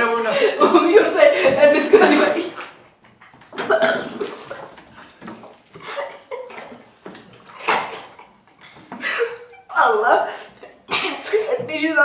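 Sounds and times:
muffled laughter and snorts: 5.7 - 6.8.

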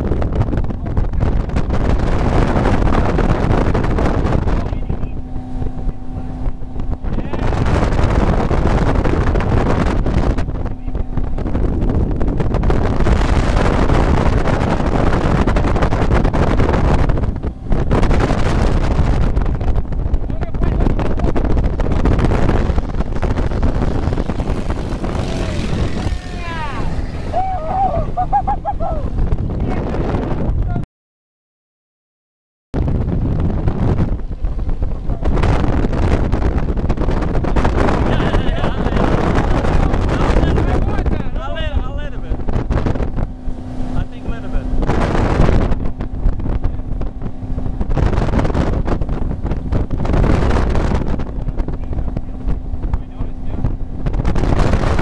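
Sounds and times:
boat engine: 0.0 - 30.8, 32.8 - 55.0
rush of boat wake: 0.0 - 30.8, 32.8 - 55.0
wind buffeting microphone: 0.0 - 30.8, 32.8 - 55.0
rushing water: 22.4 - 29.3.

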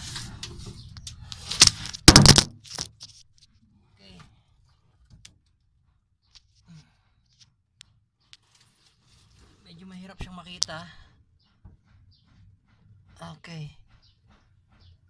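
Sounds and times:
rustling and clatter: 0.0 - 3.7.

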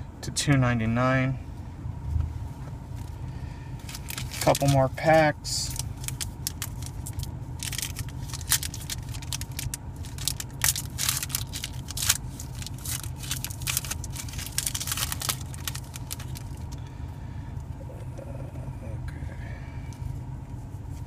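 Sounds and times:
car low hum: 0.0 - 21.0
foil pack crinkling and tearing: 3.8 - 4.8, 5.7 - 16.8.

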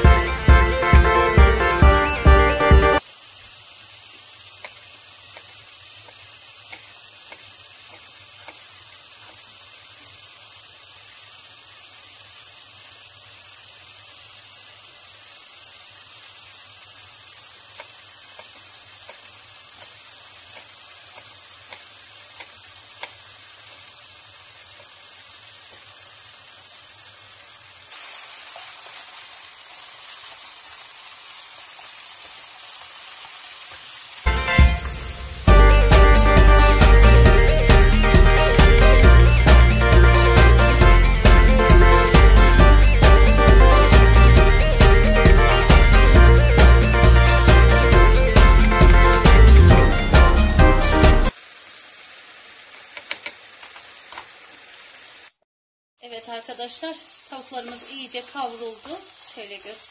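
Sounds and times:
chicken sizzling in a pan: 0.0 - 46.8, 50.9 - 55.4, 56.0 - 59.9.

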